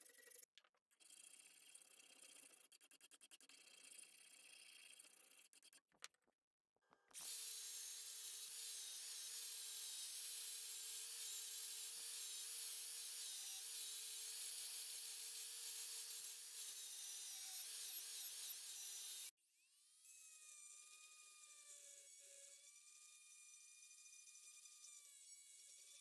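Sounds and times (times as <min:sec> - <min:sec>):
angle grinder running: 0:07.2 - 0:12.4.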